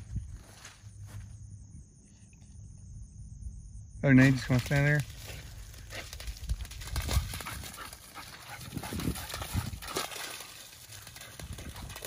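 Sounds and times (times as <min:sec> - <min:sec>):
dog paws thudding on wet grass: 0:04.3 - 0:12.0
splashing in puddles: 0:04.5 - 0:12.0.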